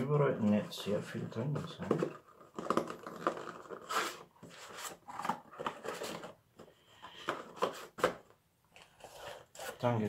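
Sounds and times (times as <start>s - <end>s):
cardboard boxes rubbing and scraping: 3.6s - 6.2s.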